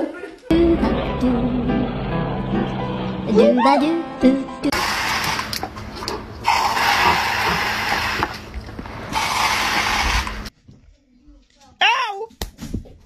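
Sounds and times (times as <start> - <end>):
hose spray nozzle hissing: 4.7 - 5.7, 6.4 - 8.5, 9.1 - 10.5.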